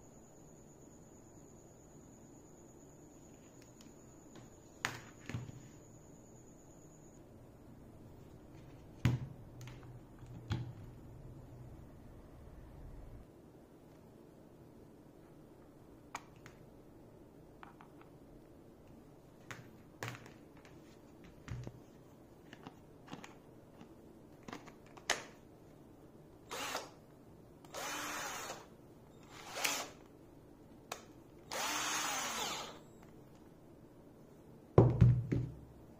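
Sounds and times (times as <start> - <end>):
cordless drill motor bursts: 26.5 - 27.0, 27.7 - 30.0, 31.5 - 32.8.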